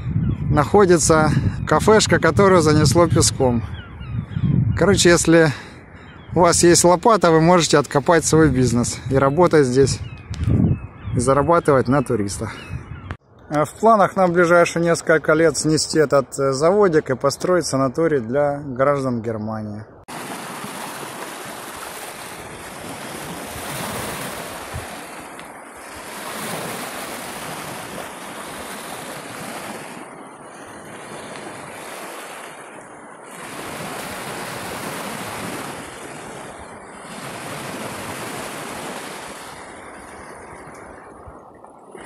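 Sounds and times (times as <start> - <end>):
waves washing over pebble beach: 20.1 - 39.8.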